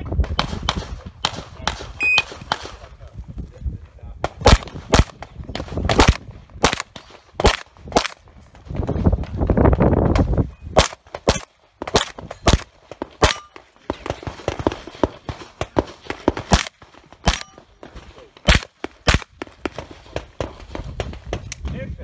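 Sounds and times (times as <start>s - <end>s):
pistol shots: 4.2s - 8.2s, 10.8s - 21.2s.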